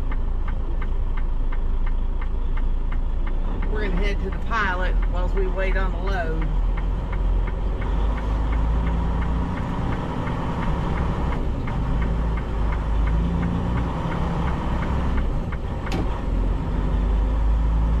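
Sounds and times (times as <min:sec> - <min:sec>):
diesel truck engine running: 0:00.0 - 0:18.0
regular ticking: 0:00.0 - 0:18.0.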